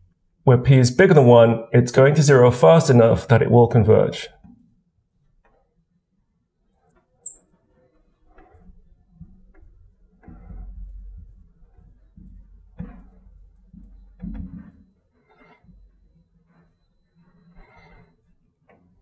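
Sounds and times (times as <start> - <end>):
marker squeaking on glass: 6.7 - 7.7, 12.2 - 15.8, 16.5 - 18.2.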